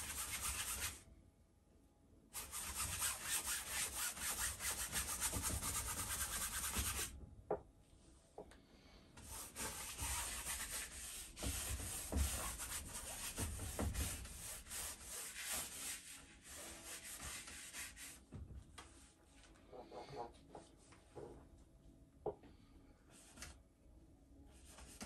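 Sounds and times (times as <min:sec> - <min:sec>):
paintbrush scrubbing on canvas: 0:09.2 - 0:18.2.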